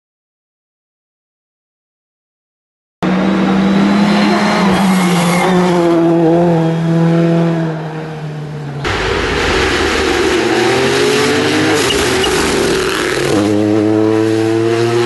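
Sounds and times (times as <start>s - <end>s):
rally car engine at high revs: 3.0s - 15.0s.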